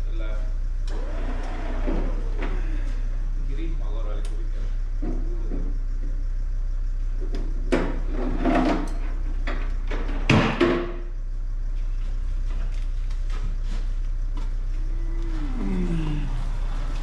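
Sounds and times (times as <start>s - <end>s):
engine low rumble: 0.0s - 17.0s.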